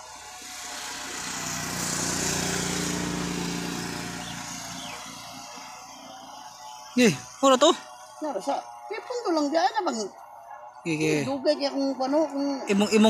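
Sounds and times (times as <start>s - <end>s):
vehicle passing on road: 0.0s - 6.7s.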